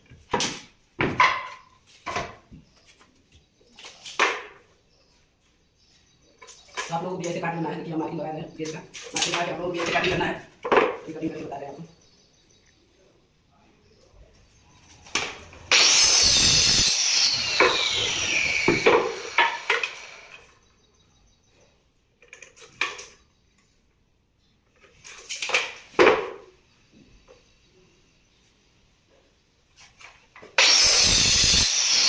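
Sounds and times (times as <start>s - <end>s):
power tool motor whining: 15.6s - 20.5s, 30.6s - 32.0s.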